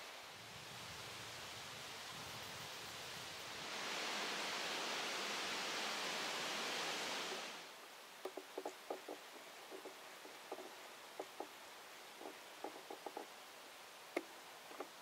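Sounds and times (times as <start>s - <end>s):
steady rushing hiss: 0.0s - 15.0s
light ticks and taps: 8.2s - 11.5s, 14.1s - 15.0s.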